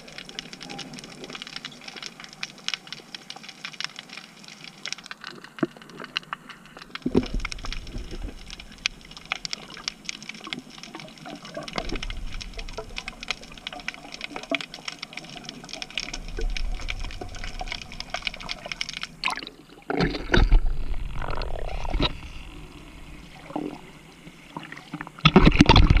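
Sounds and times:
underwater clicks and bubbling: 0.0 - 26.0
water sloshing and splashing: 0.0 - 26.0.

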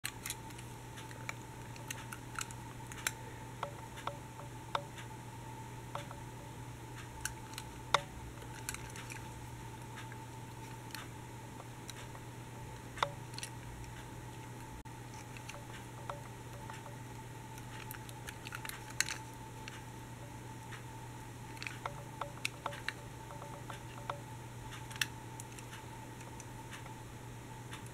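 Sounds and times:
steady hum: 0.0 - 27.9
toy clicks and taps: 21.6 - 25.8.

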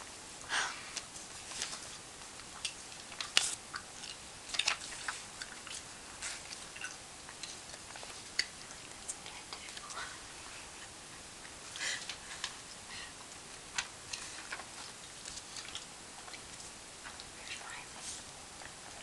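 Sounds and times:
paper crackling and rustling: 1.2 - 2.0.

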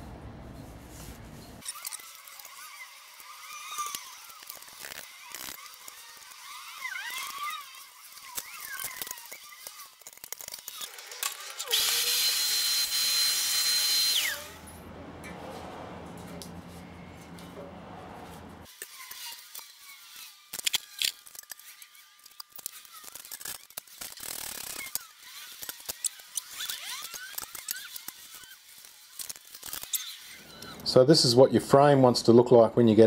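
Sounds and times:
low hum: 0.0 - 1.6, 14.1 - 18.7.

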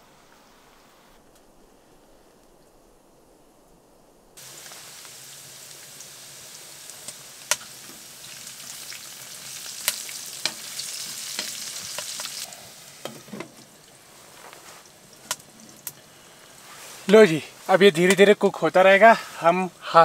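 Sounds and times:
vegetables sizzling in a frying pan: 4.4 - 20.0
spoon clicking against pan: 11.4 - 12.2.

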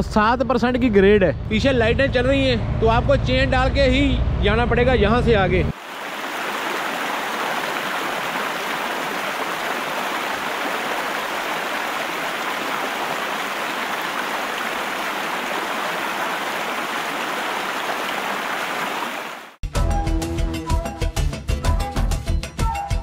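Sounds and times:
river rushing over rocks: 5.8 - 19.6.

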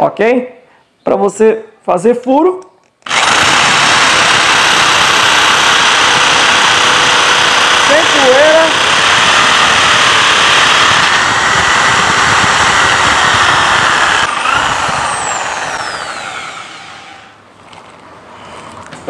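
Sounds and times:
electric drill boring into wall: 3.0 - 17.4.

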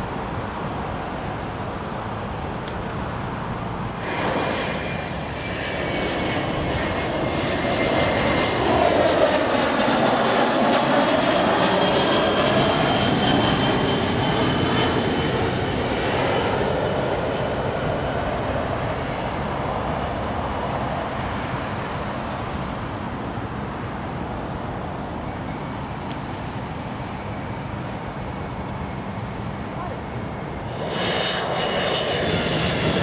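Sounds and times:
jet engines roaring and whining: 0.0 - 33.0.

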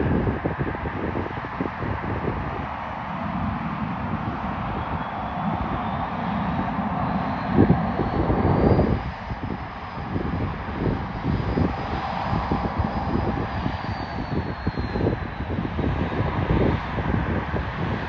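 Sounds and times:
jet engines roaring: 0.0 - 18.0.

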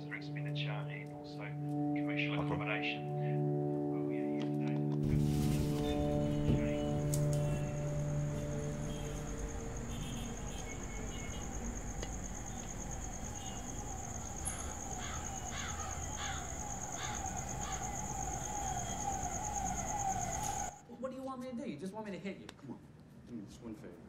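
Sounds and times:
siren wailing: 5.8 - 20.8
short falling bird calls: 14.4 - 19.0.

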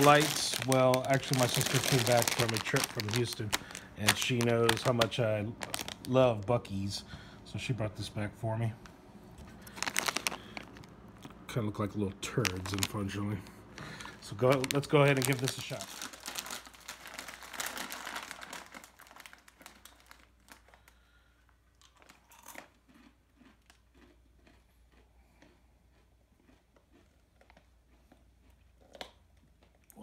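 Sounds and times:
plastic snack bag crinkling: 0.0 - 6.9, 9.4 - 24.6
chewing crunches: 9.5 - 11.4, 21.7 - 30.0.

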